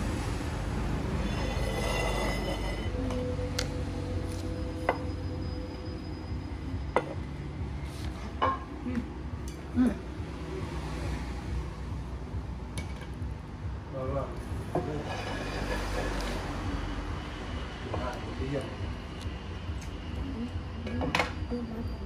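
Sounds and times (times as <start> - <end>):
ceramic plates clinking: 1.3 - 3.0, 8.4 - 8.7, 14.8 - 16.2.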